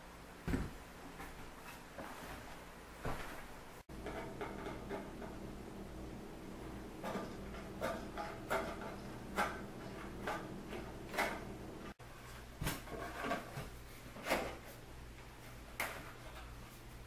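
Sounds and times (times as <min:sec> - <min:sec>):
sheet-metal pan knocks and rattles: 0:03.9 - 0:05.4.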